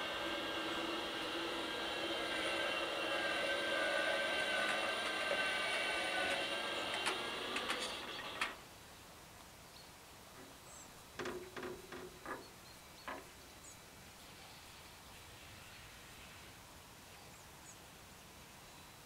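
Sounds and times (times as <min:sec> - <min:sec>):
barrier motor whine: 0:00.0 - 0:08.6
faint knocks: 0:11.2 - 0:13.4.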